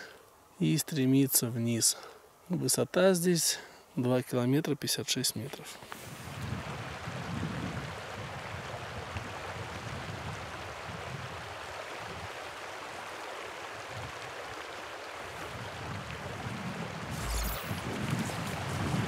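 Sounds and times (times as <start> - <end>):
river flowing over stones: 7.9 - 19.0.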